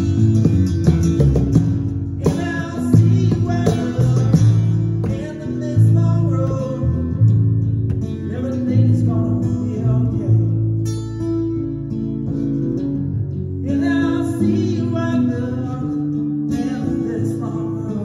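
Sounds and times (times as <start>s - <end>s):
electric bass: 0.0s - 18.0s
strummed acoustic guitar: 0.0s - 18.0s
lead vocal: 1.7s - 10.8s, 13.5s - 18.0s.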